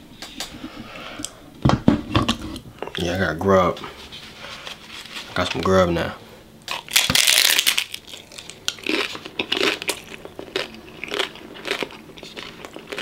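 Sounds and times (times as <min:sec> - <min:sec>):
taco shell crunching: 0:06.6 - 0:13.0.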